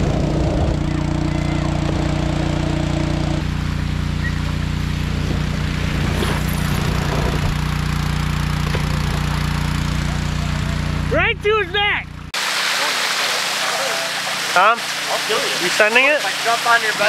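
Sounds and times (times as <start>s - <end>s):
small engine running steadily: 0.0s - 12.4s.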